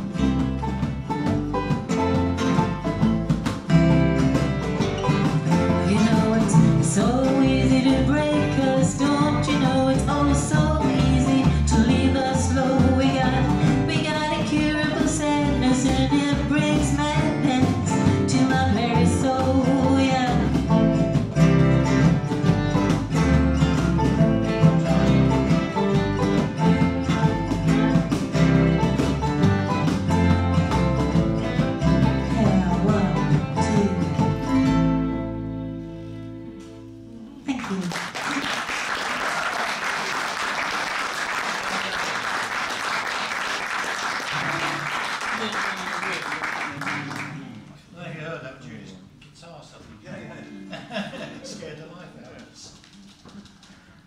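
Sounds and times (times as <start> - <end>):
fiddle melody: 0.0 - 36.8
strummed acoustic guitar: 0.0 - 37.1, 44.3 - 45.2
banjo: 0.0 - 37.8, 39.3 - 47.4
electric guitar: 0.0 - 37.9.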